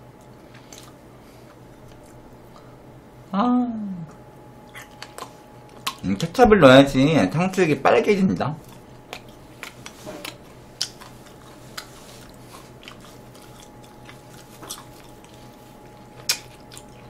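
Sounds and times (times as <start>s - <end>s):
faint steady hum: 0.0s - 17.0s
wet chewing mouth clicks: 4.1s - 6.0s, 8.6s - 17.0s.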